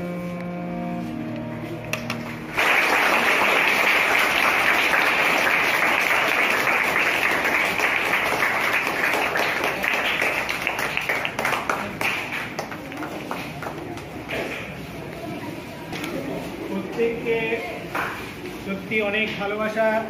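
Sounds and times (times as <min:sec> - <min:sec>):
audience applause: 0:02.0 - 0:13.8.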